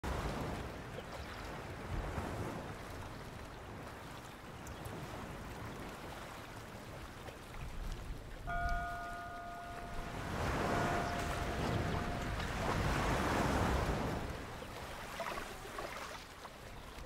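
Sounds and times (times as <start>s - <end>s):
wind rumble on microphone: 0.0s - 15.2s
steady pitched tone: 8.5s - 12.9s
ocean surf: 8.5s - 16.4s.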